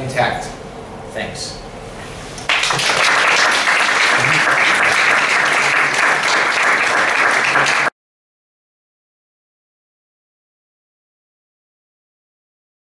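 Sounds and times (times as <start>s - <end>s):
audience applauding: 2.5s - 7.9s.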